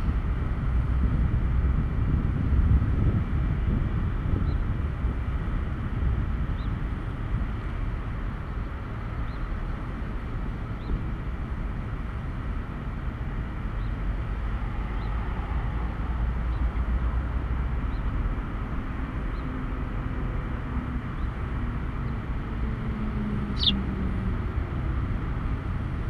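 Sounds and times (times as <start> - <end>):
road traffic rumble: 0.0 - 26.0
faint short high chirps: 23.6 - 23.8.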